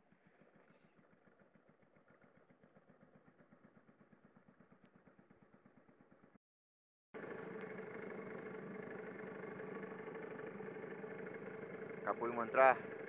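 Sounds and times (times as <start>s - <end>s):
faint outboard motor running: 0.0s - 6.4s, 7.2s - 13.0s.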